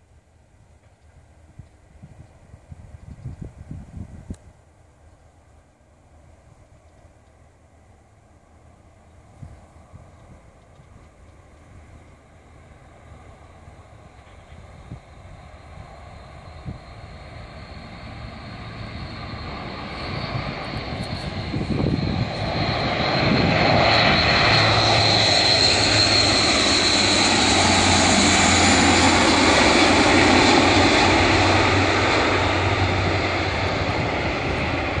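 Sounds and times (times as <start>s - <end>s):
turboprop aircraft flying past: 7.9s - 35.0s.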